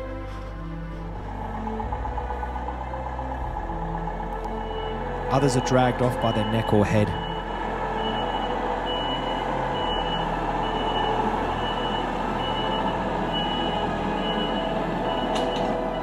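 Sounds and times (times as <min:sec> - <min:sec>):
machine engine running: 0:00.1 - 0:06.4, 0:07.2 - 0:16.0
reversing alarm beeping: 0:04.4 - 0:16.0.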